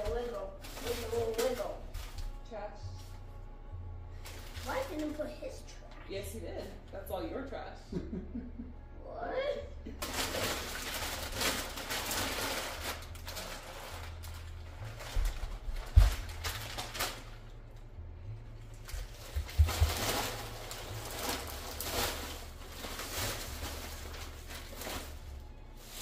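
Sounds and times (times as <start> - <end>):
paper rustling and crinkling: 0.0 - 2.4, 4.2 - 5.3, 10.0 - 17.6, 18.6 - 26.0.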